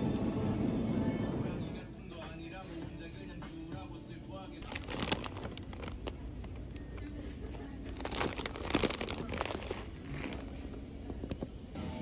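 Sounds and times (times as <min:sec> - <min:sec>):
crinkling and rustling handling: 0:04.6 - 0:11.6.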